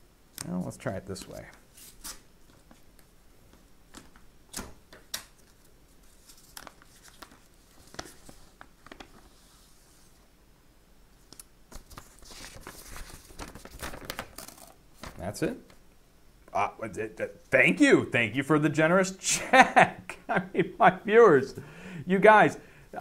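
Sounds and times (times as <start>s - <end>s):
paper envelope tearing and rustling: 11.7s - 15.2s.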